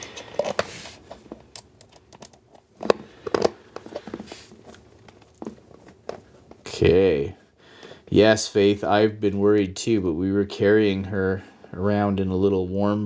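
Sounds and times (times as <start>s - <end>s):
clicks and scrapes of small screws: 0.0s - 5.4s.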